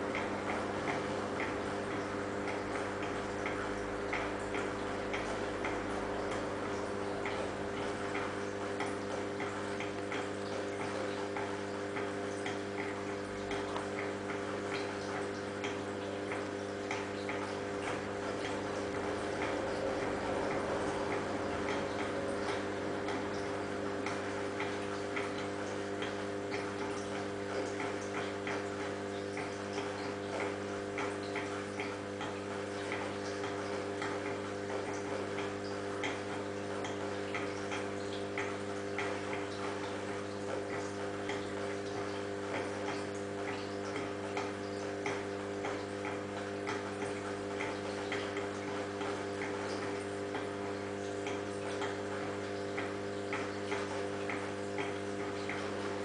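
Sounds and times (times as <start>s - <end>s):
aquarium pump humming: 0.0s - 56.0s.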